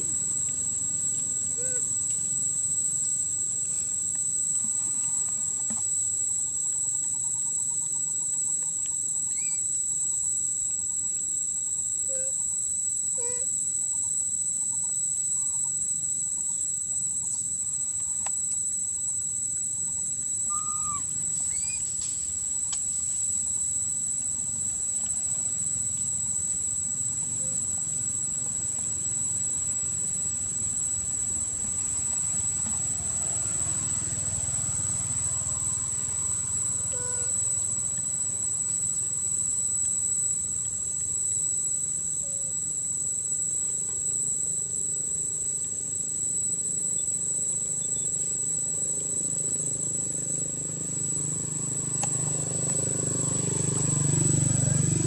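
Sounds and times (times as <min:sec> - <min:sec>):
high-pitched insect drone: 0:00.0 - 0:55.0
short chirps: 0:20.4 - 0:22.8.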